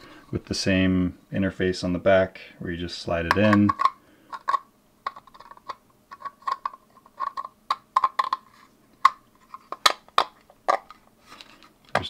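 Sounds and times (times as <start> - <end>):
plastic clicks and scrapes: 3.3 - 12.0.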